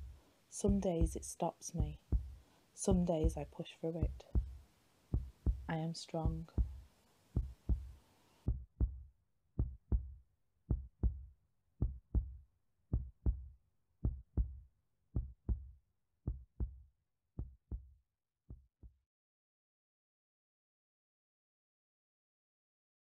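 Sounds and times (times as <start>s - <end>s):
heartbeat thumps: 0.0s - 6.8s, 7.4s - 9.0s, 9.6s - 14.6s, 15.2s - 15.7s, 16.3s - 16.8s, 17.4s - 17.9s.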